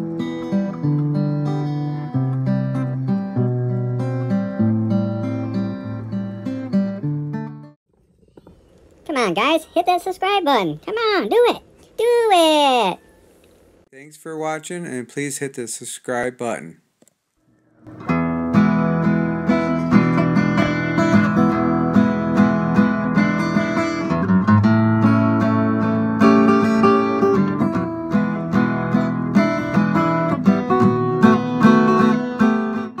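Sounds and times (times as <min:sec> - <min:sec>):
acoustic guitar music: 0:00.0 - 0:07.8, 0:17.8 - 0:33.0.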